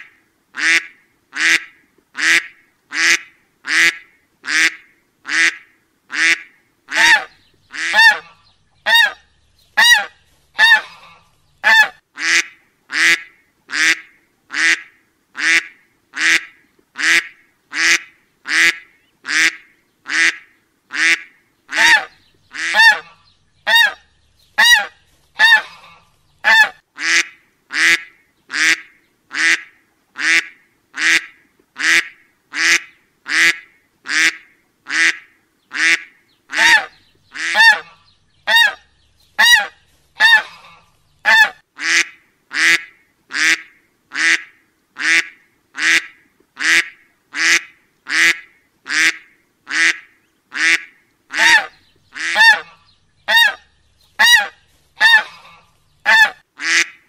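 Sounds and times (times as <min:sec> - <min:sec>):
squeaky duck honks: 0:06.2 - 0:09.2, 0:09.8 - 0:12.4, 0:21.8 - 0:24.0, 0:24.6 - 0:27.2, 0:36.6 - 0:38.8, 0:39.4 - 0:42.8, 0:51.4 - 0:53.6, 0:54.2 - 0:57.0.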